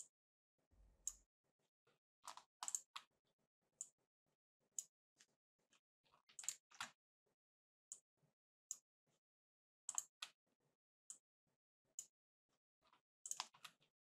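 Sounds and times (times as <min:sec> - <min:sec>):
computer mouse clicks: 0:02.3 - 0:02.9, 0:09.9 - 0:10.3, 0:13.3 - 0:13.8.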